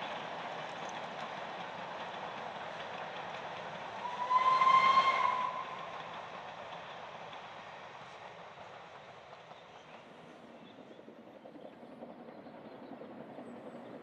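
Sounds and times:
train running: 0.0s - 14.0s
steam locomotive whistle: 4.0s - 5.8s.

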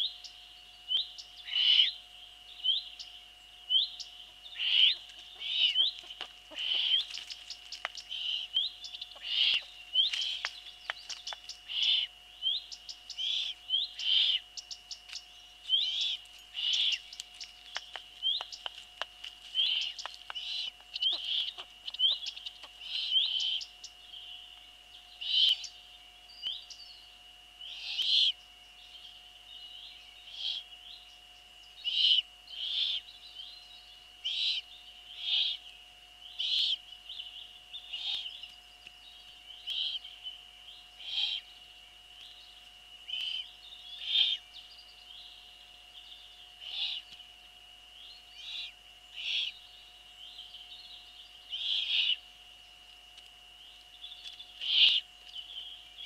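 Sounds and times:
faint steady tone: 0.0s - 56.0s
owl chick begging calls: 0.9s - 2.0s, 3.7s - 23.9s, 27.6s - 28.4s, 30.3s - 30.7s, 31.8s - 33.1s, 34.2s - 35.7s, 36.4s - 36.8s, 37.8s - 38.4s, 39.5s - 40.2s, 41.0s - 41.5s, 43.1s - 44.4s, 46.6s - 47.2s, 48.4s - 49.6s, 51.5s - 52.2s, 54.2s - 55.1s.

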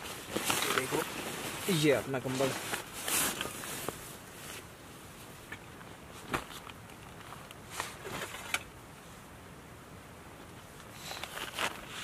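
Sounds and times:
blanket fabric rustling: 0.0s - 4.7s.

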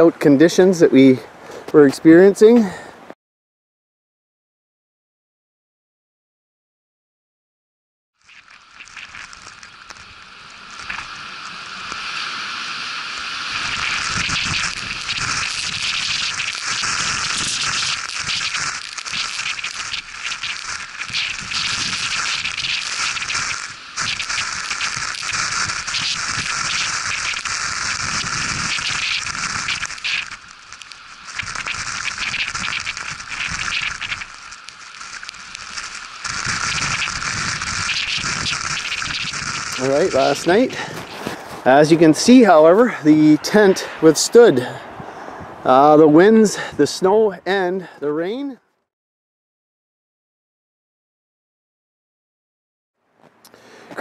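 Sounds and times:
blizzard wind driving snow: 9.2s - 19.1s, 20.0s - 46.9s.

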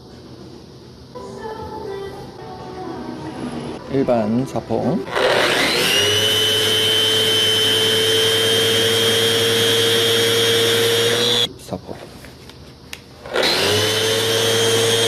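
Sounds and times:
orbital sander on wood: 5.1s - 11.5s, 13.3s - 15.0s.

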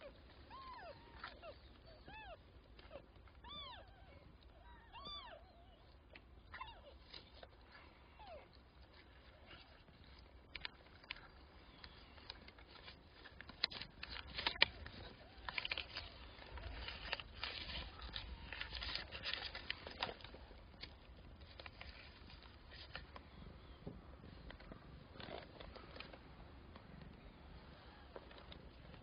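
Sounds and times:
newspaper rustling and crinkling: 8.7s - 26.9s.

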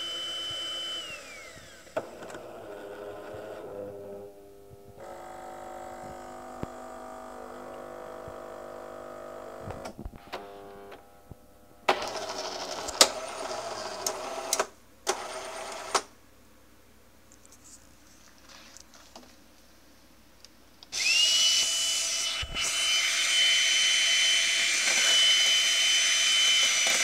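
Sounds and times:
coffee machine motor whirring: 0.0s - 4.3s, 4.9s - 11.0s, 11.9s - 16.0s, 20.9s - 27.0s.

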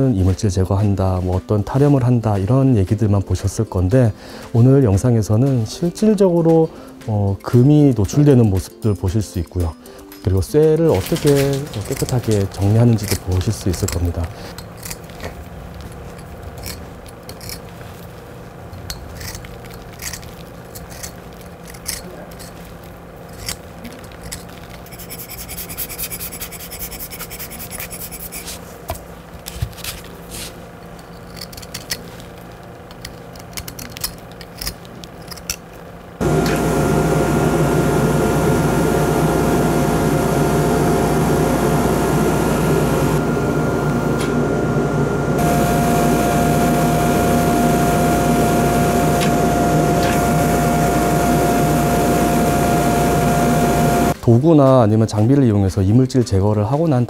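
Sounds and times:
scratching and clicking of hand tools: 9.4s - 35.9s
power tool hissing and whining: 36.2s - 54.2s.

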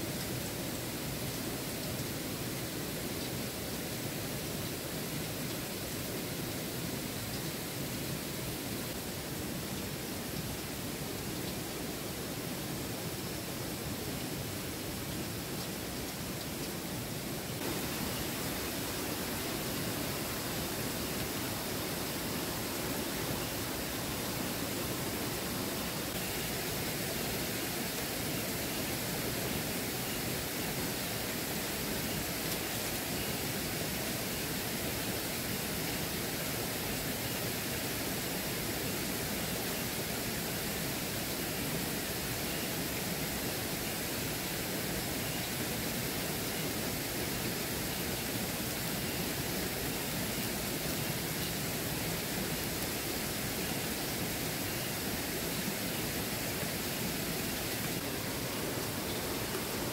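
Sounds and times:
waterfall rushing: 16.9s - 59.9s.

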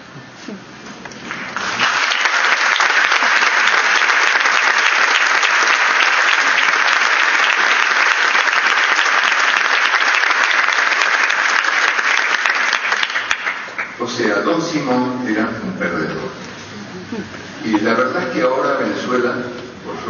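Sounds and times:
audience applauding: 1.2s - 14.0s.

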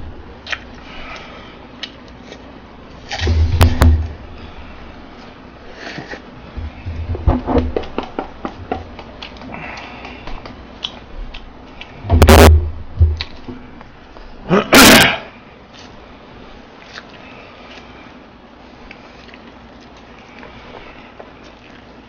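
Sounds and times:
wet chewing: 0.4s - 3.3s, 7.9s - 12.0s, 16.8s - 18.1s, 18.7s - 22.0s.

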